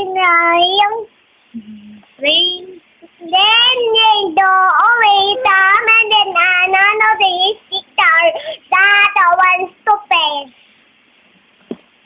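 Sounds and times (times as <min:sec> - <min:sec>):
toddler girl singing: 0:00.0 - 0:01.1, 0:02.2 - 0:10.5.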